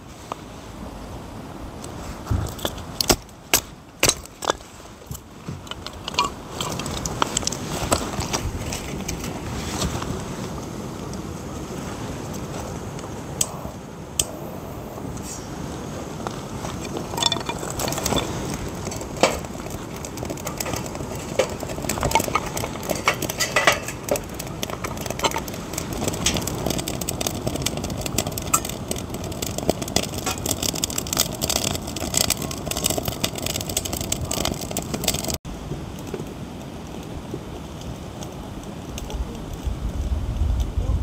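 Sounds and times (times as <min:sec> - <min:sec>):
steady background hiss: 0:00.0 - 0:24.9.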